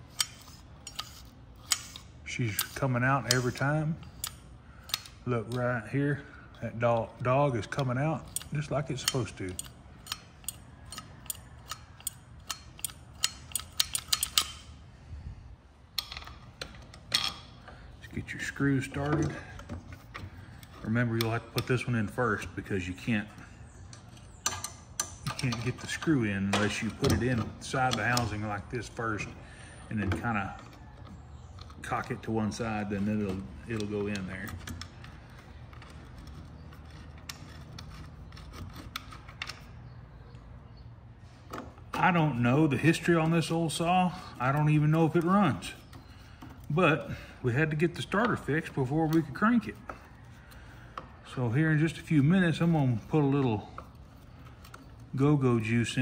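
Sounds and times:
small metal clicks and taps: 0.1s - 5.7s, 7.7s - 14.6s, 23.9s - 28.4s
recoil starter ratcheting clicks: 6.9s - 14.6s.

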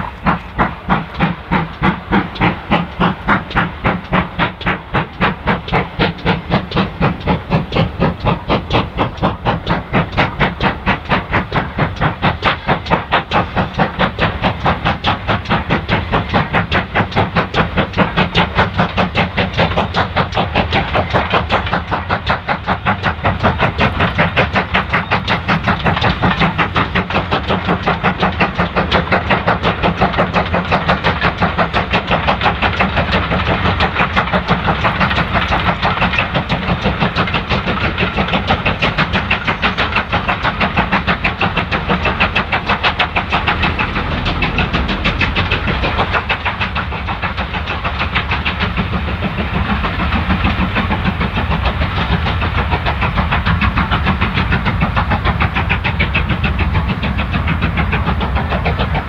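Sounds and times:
steam locomotive exhaust beats: 0.0s - 59.0s.

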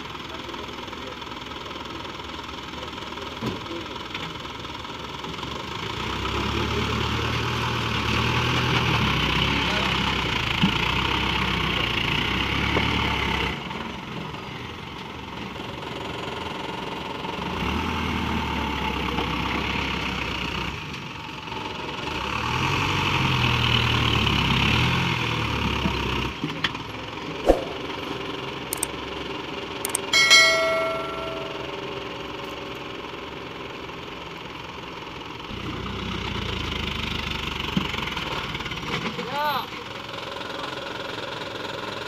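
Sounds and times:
diesel truck engine revving: 21.6s - 26.4s
sharp clicks: 29.9s - 30.1s
short chime: 29.9s - 32.0s.

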